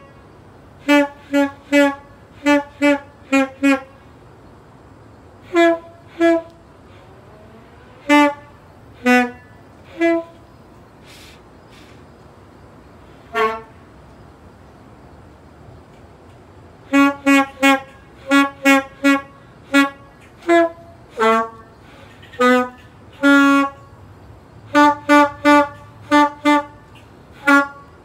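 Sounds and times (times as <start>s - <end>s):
horn tooting: 0.0s - 4.1s, 5.4s - 10.5s, 13.2s - 13.9s, 16.8s - 24.0s, 24.7s - 28.0s.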